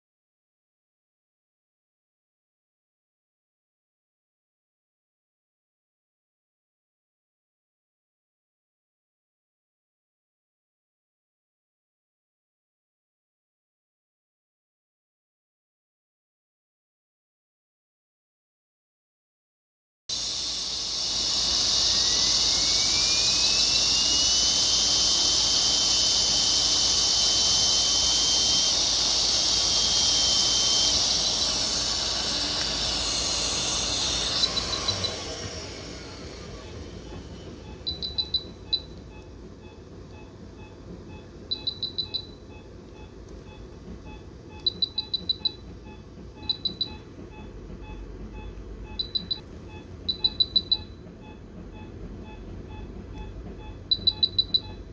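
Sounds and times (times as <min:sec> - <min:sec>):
loud hiss with rising whine: 0:20.1 - 0:38.0
higher alarm beeps: 0:20.3 - 0:35.4, 0:36.6 - 0:54.9
patient monitor beeping: 0:20.3 - 0:54.9.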